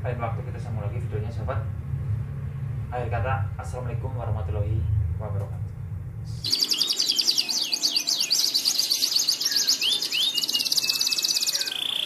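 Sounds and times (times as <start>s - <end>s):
canary singing trills: 6.4s - 12.0s.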